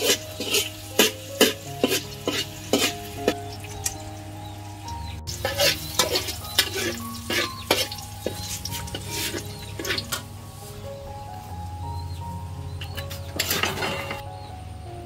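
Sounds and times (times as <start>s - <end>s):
metal spatula scraping a wok: 0.0s - 3.4s, 5.3s - 10.4s, 12.8s - 14.2s
oil sizzling: 0.0s - 14.3s.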